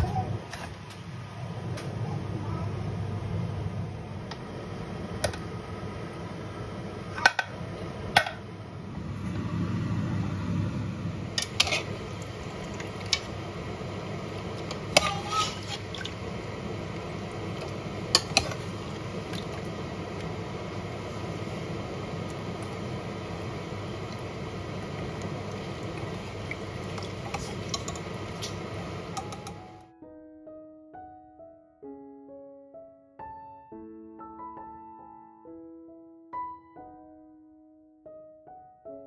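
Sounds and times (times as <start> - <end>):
steady low hum: 0.0 - 29.4.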